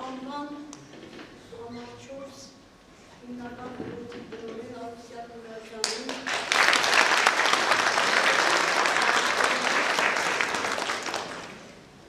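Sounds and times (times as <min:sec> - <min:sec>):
audience applauding: 0:06.1 - 0:11.8.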